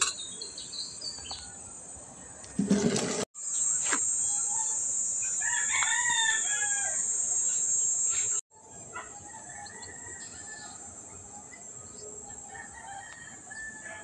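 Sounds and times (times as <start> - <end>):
steady high-pitched hiss: 2.8 - 13.6
rooster crowing: 5.4 - 7.1, 9.2 - 10.8, 12.4 - 14.0.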